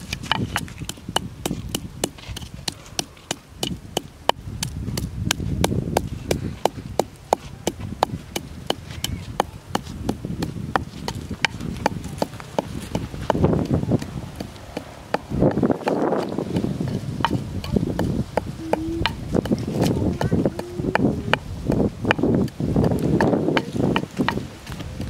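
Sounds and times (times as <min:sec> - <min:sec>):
wooden pestle pounding in mortar: 0:00.0 - 0:25.0.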